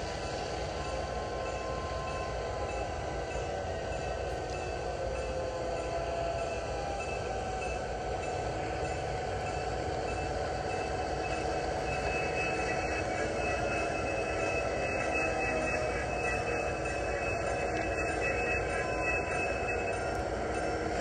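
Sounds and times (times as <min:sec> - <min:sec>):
model train rumbling: 0:00.0 - 0:21.0
high squeal: 0:09.5 - 0:21.0.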